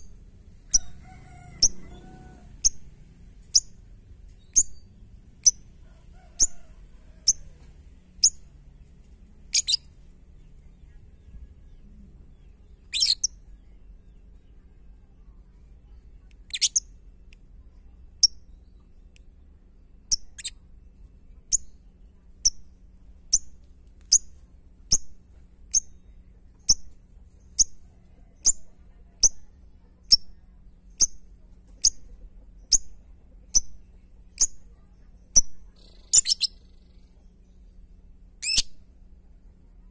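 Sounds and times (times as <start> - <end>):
lovebird chirping: 0.0 - 5.7, 8.2 - 8.5, 9.5 - 9.9, 10.9 - 13.8, 16.4 - 17.0, 20.1 - 20.6, 24.9 - 29.5, 30.1 - 37.1, 38.4 - 38.8.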